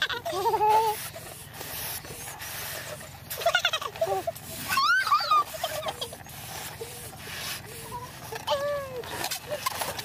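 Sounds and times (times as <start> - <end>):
breathy puffs of air: 0.8 - 3.4, 5.4 - 8.5.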